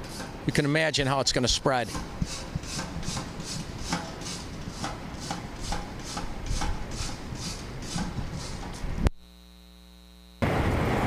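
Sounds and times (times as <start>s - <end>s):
water spraying in hissing spurts: 0.0s - 9.0s
wind noise on microphone: 1.9s - 9.1s.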